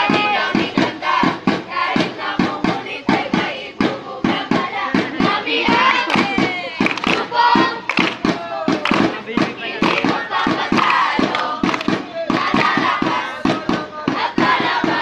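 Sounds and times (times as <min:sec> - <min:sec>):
group singing a chant: 0:00.0 - 0:15.0
hand claps: 0:05.0 - 0:13.7.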